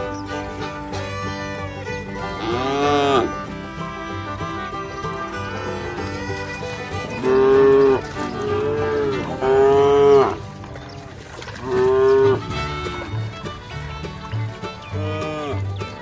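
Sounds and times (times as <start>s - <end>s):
music playing: 0.0s - 16.0s
cattle mooing: 2.2s - 13.3s, 14.9s - 15.8s.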